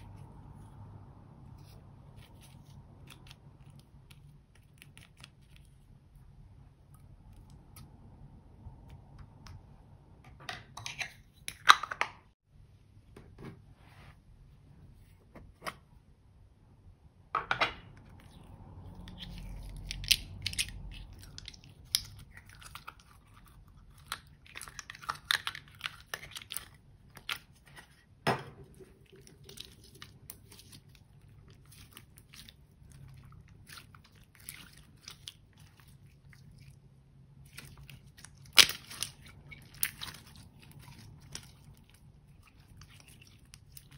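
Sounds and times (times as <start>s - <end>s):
slime squeezed with sticky crackles: 29.3s - 43.9s.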